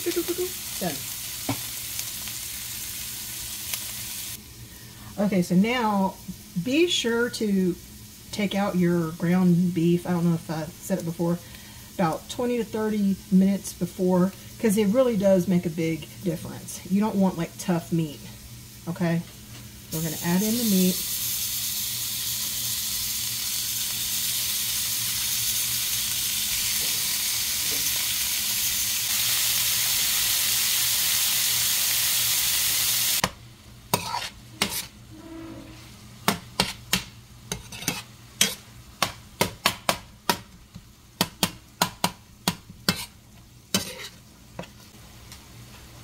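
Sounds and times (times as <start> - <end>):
meat sizzling in a pan: 0.0 - 4.9, 19.7 - 33.3
metal spoon scraping a pan: 33.9 - 35.9, 37.5 - 38.6, 42.9 - 44.2.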